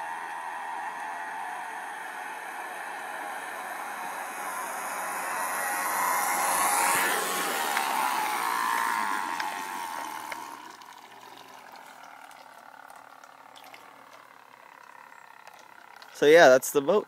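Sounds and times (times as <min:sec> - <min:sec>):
electric motor whine of toy boat: 0:00.0 - 0:16.4
water rushing from boat wake: 0:02.6 - 0:14.6.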